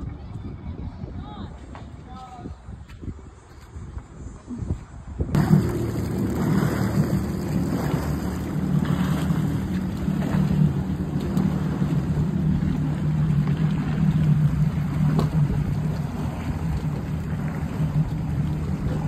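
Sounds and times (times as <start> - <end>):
jet ski engine droning: 5.3 - 19.0.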